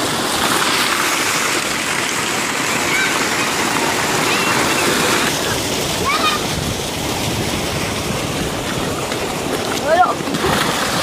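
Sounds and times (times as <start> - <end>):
water jet pouring into tank: 0.0 - 11.0
children splashing in water: 0.1 - 11.0.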